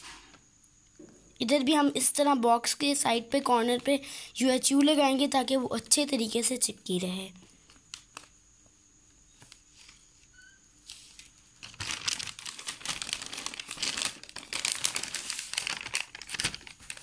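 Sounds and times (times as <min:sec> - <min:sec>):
glossy paper crinkling: 0:07.6 - 0:08.4, 0:09.4 - 0:17.0.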